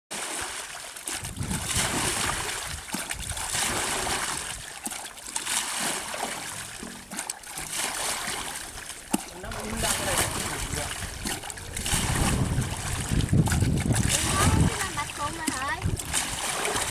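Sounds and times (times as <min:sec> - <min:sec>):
muddy water splashing and pouring: 0:00.1 - 0:16.9.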